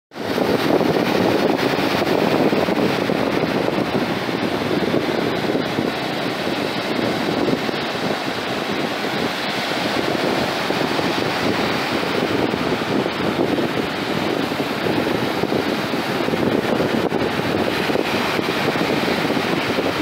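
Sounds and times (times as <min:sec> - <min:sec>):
wind buffeting microphone: 0:00.1 - 0:20.0
small waves breaking on sand: 0:00.2 - 0:20.0.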